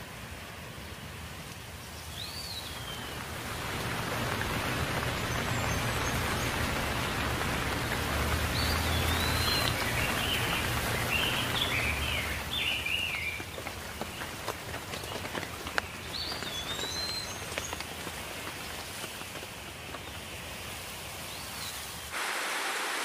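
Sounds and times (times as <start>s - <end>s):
rain falling on leaves: 0.2s - 23.0s
bird chirping: 2.0s - 14.3s, 14.9s - 17.8s.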